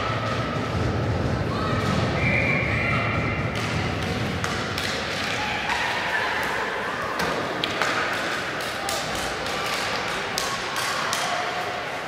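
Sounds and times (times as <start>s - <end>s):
ice rink background noise: 0.0s - 12.0s
hockey sticks and puck knocking: 3.4s - 6.6s, 7.2s - 11.6s.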